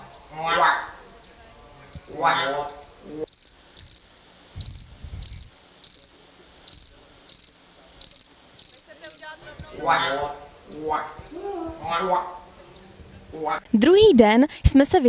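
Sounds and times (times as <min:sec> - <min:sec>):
cricket chirping: 0:00.0 - 0:11.5, 0:12.1 - 0:13.0.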